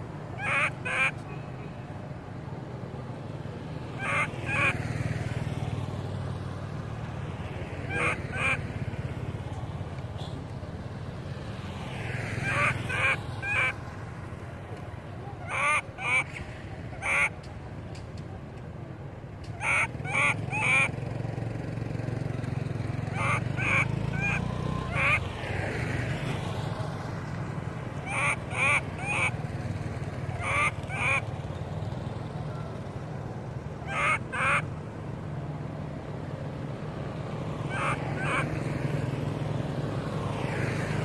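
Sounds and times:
macaque squealing calls: 0.4s - 1.1s, 4.0s - 4.8s, 7.9s - 8.6s, 12.4s - 13.8s, 15.4s - 16.3s, 17.0s - 17.3s, 19.6s - 20.9s, 23.1s - 25.2s, 28.0s - 29.4s, 30.3s - 31.2s, 33.8s - 34.6s, 37.7s - 38.5s.

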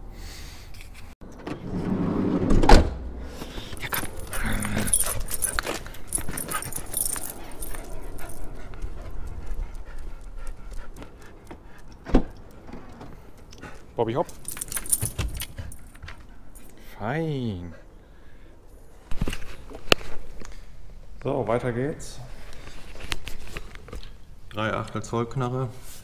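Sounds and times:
dog tags jingling: 3.7s - 10.8s, 14.0s - 16.8s.

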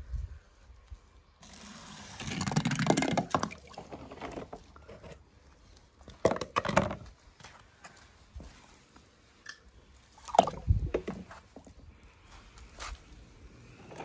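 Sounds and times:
water sloshing and squishing: 2.2s - 5.0s, 8.5s - 11.8s.

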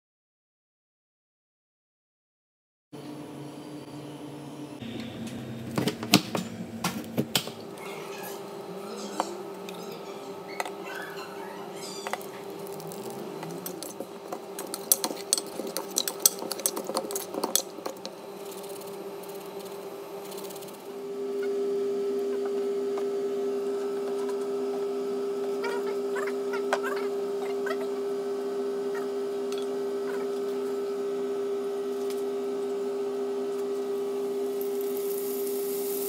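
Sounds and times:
steady low hum: 3.0s - 10.6s
utensils clinking on metal bowl: 14.6s - 17.8s.

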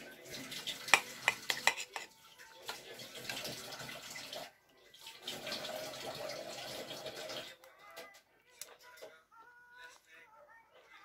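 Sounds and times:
noodles being stirred: 0.0s - 10.2s
cutlery clinking on ceramic bowl: 0.8s - 2.2s.

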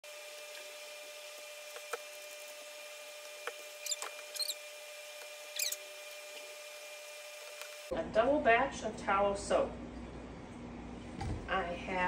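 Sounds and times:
spoon squeaking on plastic tub: 3.8s - 4.6s, 5.5s - 6.4s.

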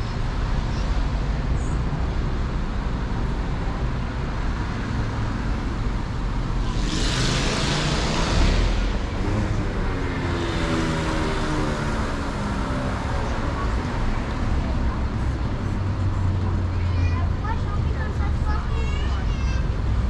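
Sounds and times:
car engine and road rumble: 0.0s - 20.0s
vehicle passing close by: 6.0s - 15.0s.

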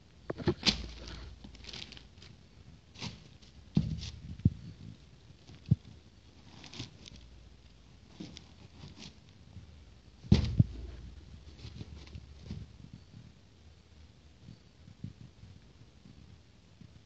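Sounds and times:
packaging rustling: 0.3s - 2.4s
knocks on a box: 10.3s - 10.8s.

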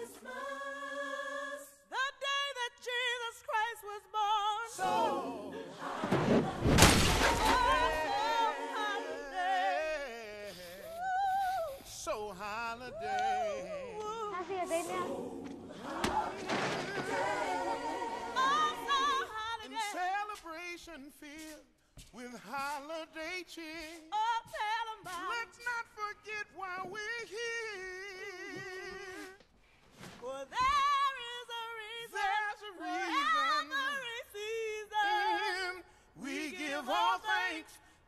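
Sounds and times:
gospel singing with vibrato: 0.0s - 38.0s.

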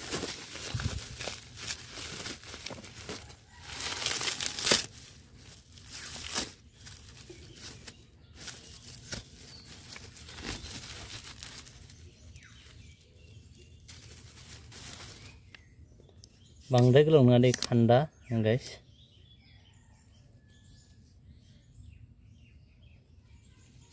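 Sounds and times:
bubble wrap crinkling: 0.0s - 15.6s.

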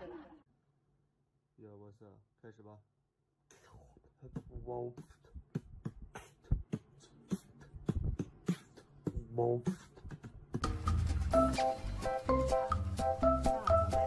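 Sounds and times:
background music with steady beat: 4.3s - 14.0s.

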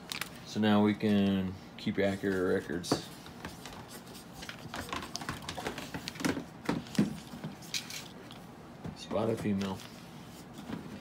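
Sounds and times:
plastic package crinkling: 0.0s - 0.4s.

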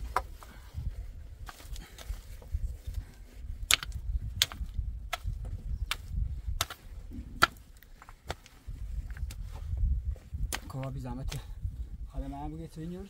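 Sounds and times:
stick knocking into hard earth: 3.6s - 8.5s, 10.4s - 11.4s.

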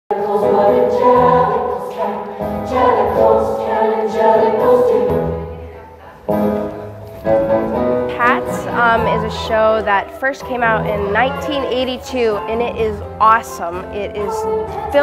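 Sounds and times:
choir singing held notes: 0.1s - 5.7s
musical accompaniment: 0.1s - 15.0s.

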